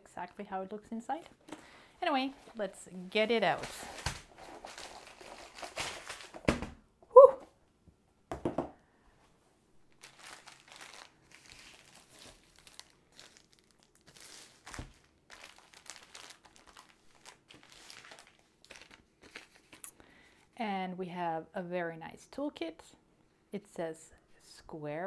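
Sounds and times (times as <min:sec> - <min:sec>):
plastic packaging crinkling: 0:03.2 - 0:06.6, 0:09.9 - 0:19.9.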